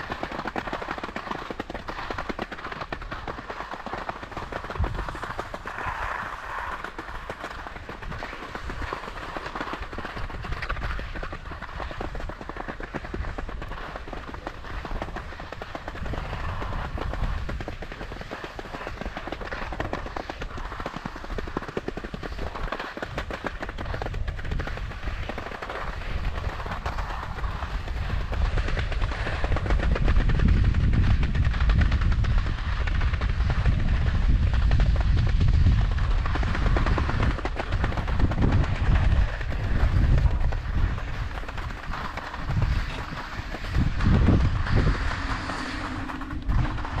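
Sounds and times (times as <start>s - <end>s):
skis scraping over hard snow: 0.0s - 47.0s
low rumble: 39.7s - 47.0s.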